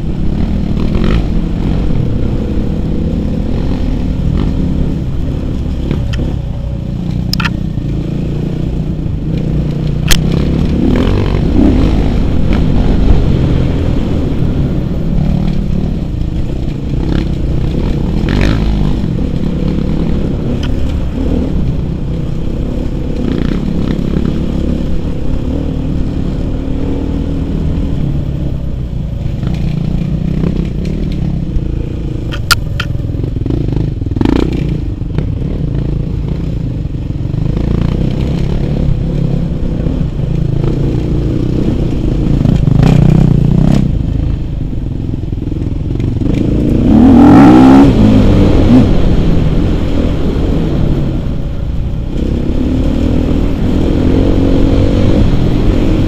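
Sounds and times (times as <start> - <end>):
dirt bike engine revving: 7.6 - 28.0, 33.2 - 36.5, 46.2 - 51.1, 52.2 - 56.0
sharp clicks and knocks: 32.3 - 33.0.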